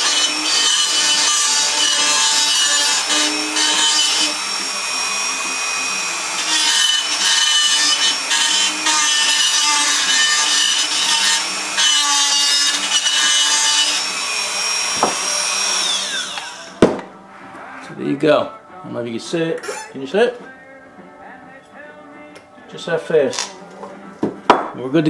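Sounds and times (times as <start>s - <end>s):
rotary tool grinding metal: 0.0s - 16.8s.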